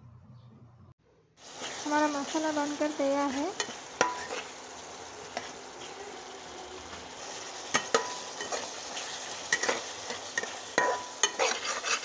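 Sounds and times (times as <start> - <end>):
masala sizzling in a pan: 1.4 - 12.0
spoon scraping and knocking pan: 3.2 - 4.6, 6.9 - 12.0.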